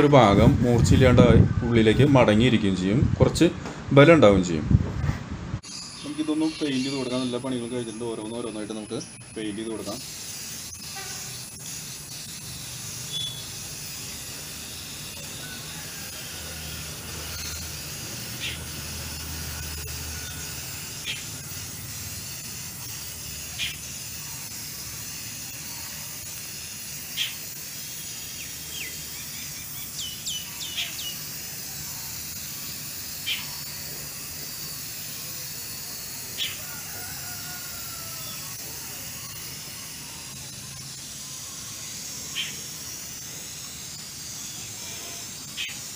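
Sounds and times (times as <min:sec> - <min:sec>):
high bird chirps: 0:05.6 - 0:11.8, 0:12.5 - 0:14.4, 0:17.2 - 0:21.6, 0:27.1 - 0:32.2, 0:37.2 - 0:42.8
spray-paint can hissing: 0:05.6 - 0:45.9.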